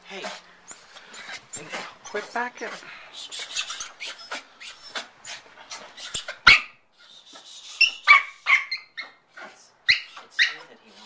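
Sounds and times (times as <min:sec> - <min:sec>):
puppy yipping and barking: 0:06.0 - 0:06.8, 0:07.7 - 0:09.2, 0:09.9 - 0:10.7.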